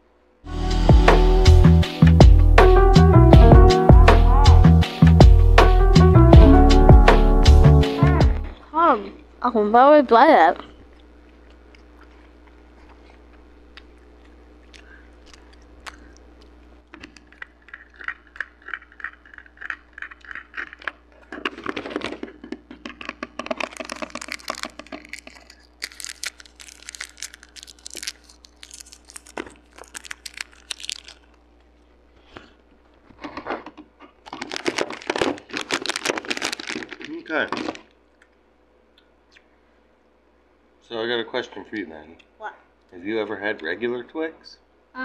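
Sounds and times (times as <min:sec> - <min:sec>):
crunchy chewing: 0:10.8 - 0:32.6, 0:33.3 - 0:38.3.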